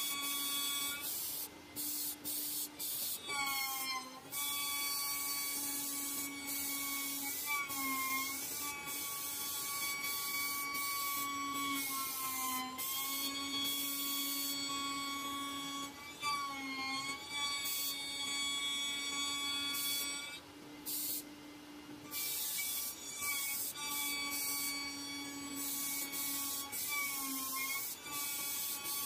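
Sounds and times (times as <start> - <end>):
high hiss of milling: 0.0 - 3.3.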